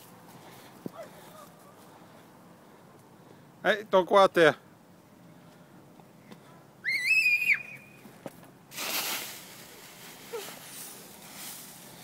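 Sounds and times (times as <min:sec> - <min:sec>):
child squealing: 0:06.8 - 0:08.0
dry leaves crunching: 0:08.7 - 0:12.0.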